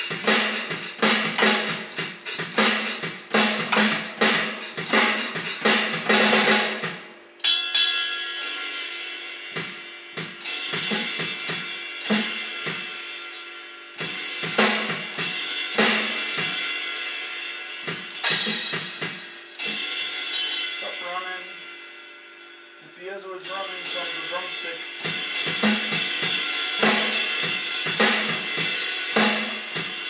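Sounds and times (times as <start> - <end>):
sticks striking drum pads: 0.0 - 7.0, 10.2 - 11.3
electronic drum hits: 0.0 - 7.1, 9.6 - 12.9, 17.9 - 21.7, 23.4 - 30.0
cymbal crash ringing: 0.0 - 30.0.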